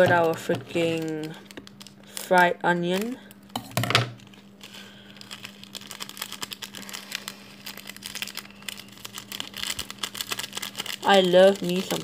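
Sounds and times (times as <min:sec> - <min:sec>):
plastic sachet crinkling: 0:00.0 - 0:03.5, 0:04.2 - 0:12.0.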